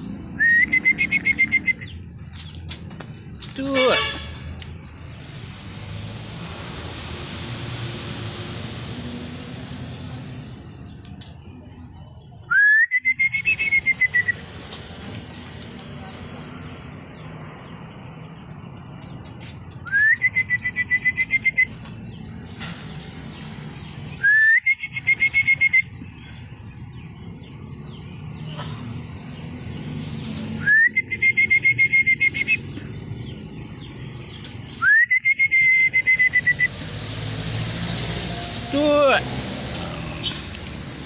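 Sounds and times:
high pulsing whistling call: 0.3 - 2.6, 5.2 - 15.2, 19.7 - 22.4, 23.3 - 26.5, 30.6 - 33.4, 34.2 - 37.2.

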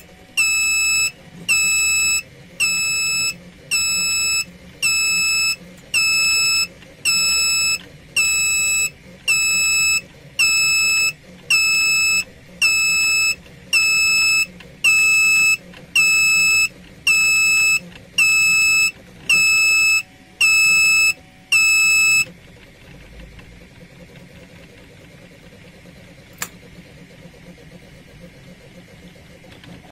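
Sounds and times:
electronic buzzer beeping: 0.4 - 22.3.

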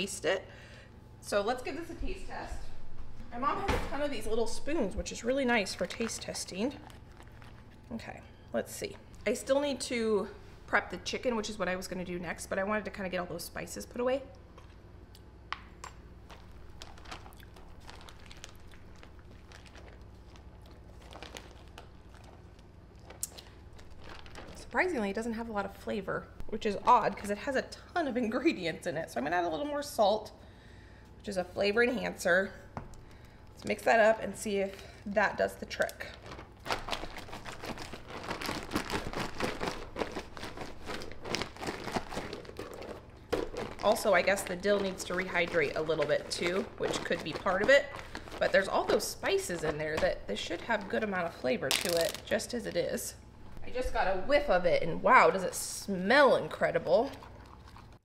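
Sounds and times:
marinade stirred in a bowl: 5.5 - 8.2, 35.7 - 51.1.

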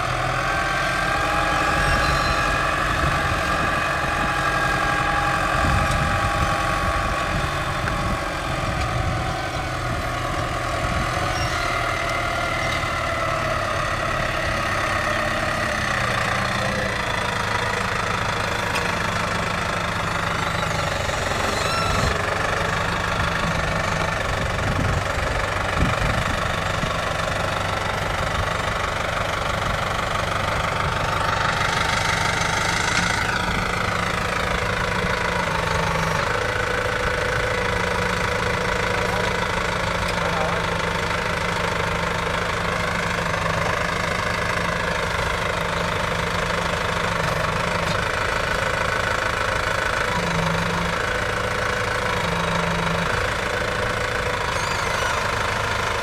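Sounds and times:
whining tones: 1.4 - 12.8.

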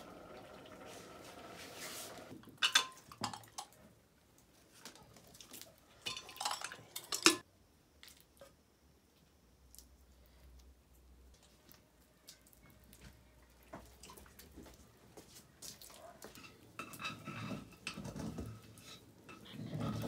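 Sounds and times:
steel bowls clinking and scraping: 2.6 - 3.8, 6.0 - 7.4, 16.3 - 20.0.

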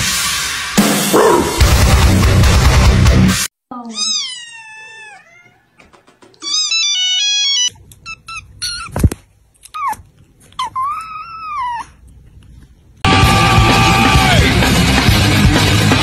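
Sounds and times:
kittens meowing: 3.8 - 9.1.

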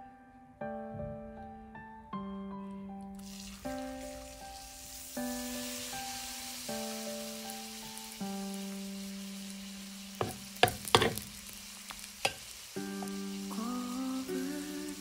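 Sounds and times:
soft background music: 0.0 - 11.5, 12.7 - 15.0
batter sizzling in a pan: 3.2 - 15.0
spatula scraping and tapping pan: 10.2 - 11.4, 12.2 - 12.5.

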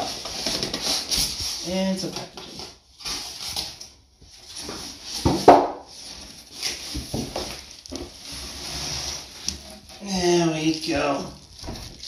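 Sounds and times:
cardboard box rustling: 4.4 - 12.0
plastic bag crinkling: 6.0 - 12.0.

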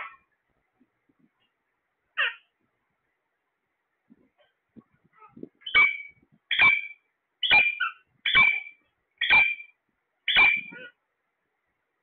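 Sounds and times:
parakeet screeching calls: 2.2 - 2.4, 5.6 - 9.7, 10.3 - 11.0.

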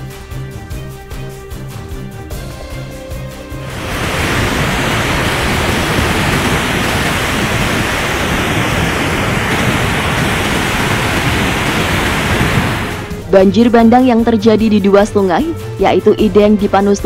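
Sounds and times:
river torrent rushing: 3.5 - 13.4.

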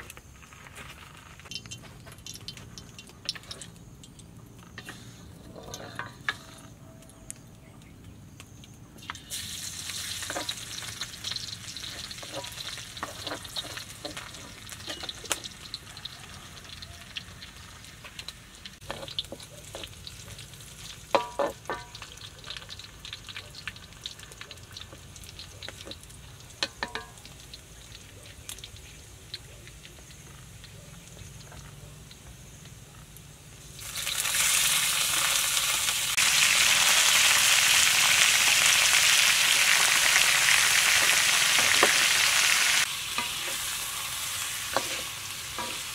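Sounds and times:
hot oil sizzling in wok: 1.1 - 6.8, 9.0 - 45.9
spatula knocking against wok: 26.6 - 27.2.

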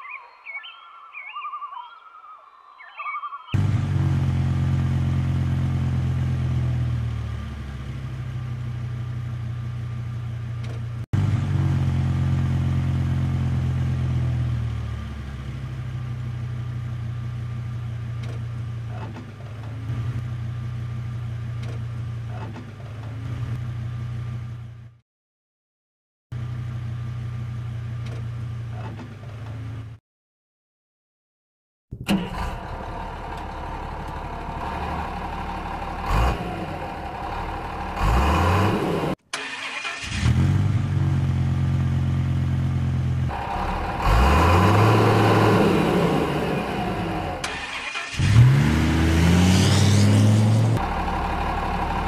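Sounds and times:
truck engine running: 3.6 - 25.0, 31.9 - 52.0.

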